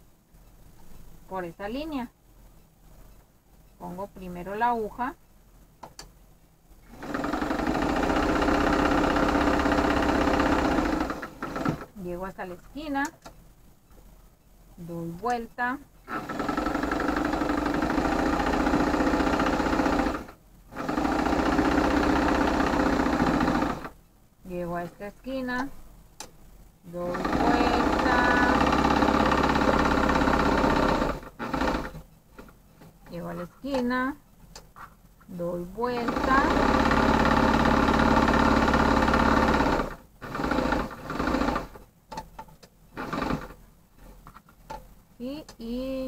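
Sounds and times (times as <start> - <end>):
sewing machine stitching: 6.9 - 12.0, 16.0 - 24.0, 27.0 - 32.5, 35.8 - 41.8, 43.0 - 43.6.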